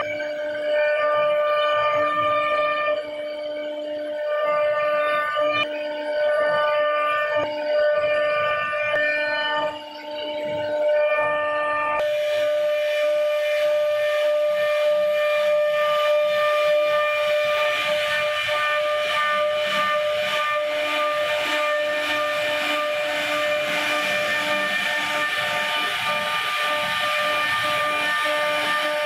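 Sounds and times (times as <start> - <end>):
router spindle whining: 0.0 - 29.0
hiss of bit cutting wood: 12.0 - 29.0.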